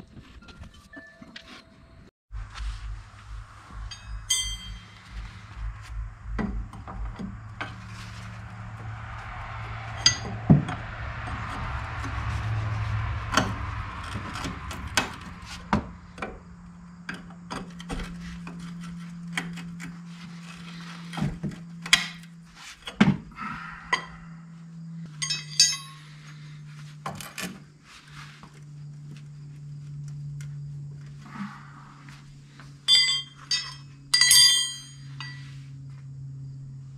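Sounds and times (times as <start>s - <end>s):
metal tools clinking on metal: 3.9s - 5.2s, 25.1s - 26.3s, 32.9s - 35.5s.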